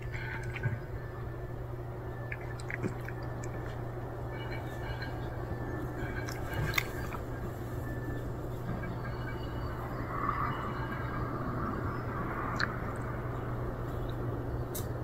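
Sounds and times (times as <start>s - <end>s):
steady low hum: 0.0s - 15.0s
cat crunching kibble: 2.2s - 3.8s.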